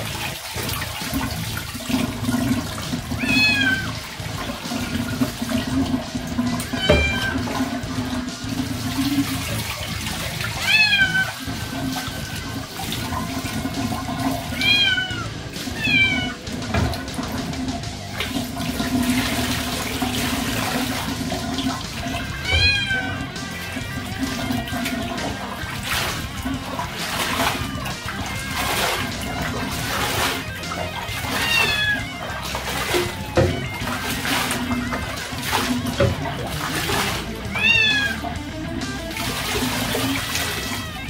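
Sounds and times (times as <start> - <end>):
tap water running and splashing: 0.0 - 41.0
cat meowing: 3.2 - 4.1, 6.6 - 7.8, 10.4 - 12.2, 14.3 - 16.5, 22.1 - 25.0, 29.7 - 35.8, 36.5 - 38.4, 39.7 - 41.0.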